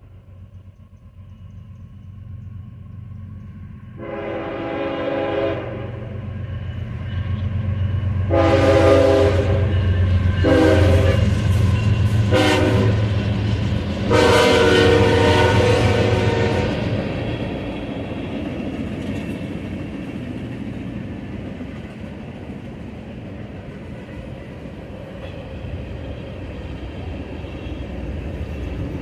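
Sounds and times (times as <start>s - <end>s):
diesel locomotive engine rumble: 0.0s - 29.0s
locomotive horn blasts: 4.0s - 6.2s, 8.3s - 9.8s, 10.4s - 11.3s, 12.3s - 13.1s, 14.1s - 16.9s.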